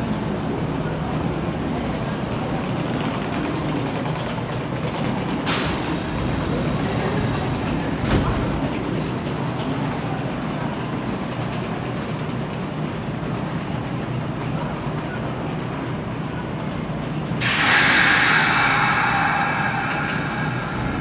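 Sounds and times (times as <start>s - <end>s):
train low hum: 0.0s - 21.0s
train doors thudding shut: 5.5s - 8.8s
compressed air hiss: 17.4s - 21.0s.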